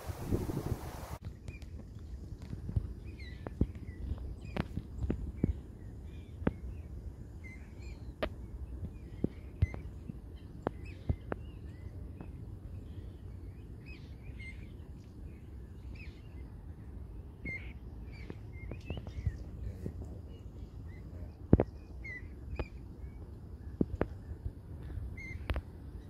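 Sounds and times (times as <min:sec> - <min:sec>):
waterbird chick cheeping: 0:25.1 - 0:26.0.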